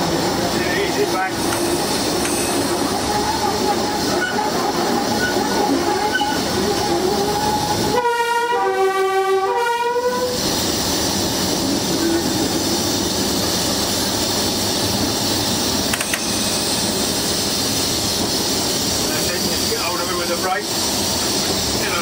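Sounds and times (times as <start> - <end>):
locomotive two-tone horn: 7.8 - 10.4.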